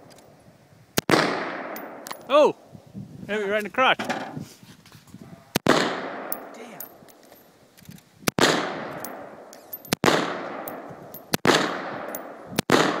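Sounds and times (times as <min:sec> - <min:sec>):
rifle shots with echo: 0:01.0 - 0:02.2, 0:05.6 - 0:06.8, 0:08.3 - 0:13.0.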